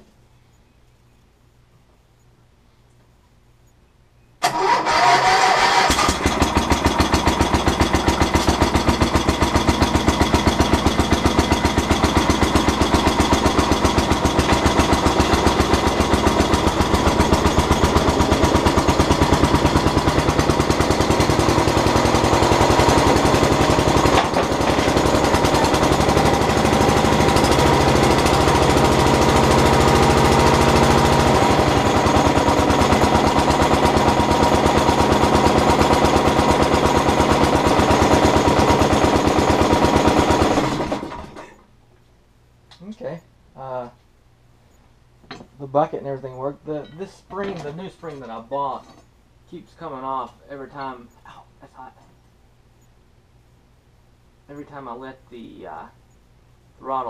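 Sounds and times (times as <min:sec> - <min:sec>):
engine running loudly: 0:04.4 - 0:41.4
engine cranking and starting: 0:04.4 - 0:41.6.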